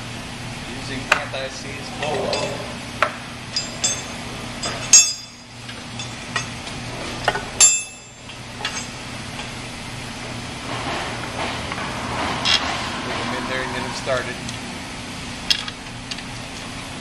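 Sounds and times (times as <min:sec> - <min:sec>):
steady low hum: 0:00.0 - 0:17.0
metallic clinks of wrench on metal: 0:03.6 - 0:06.5.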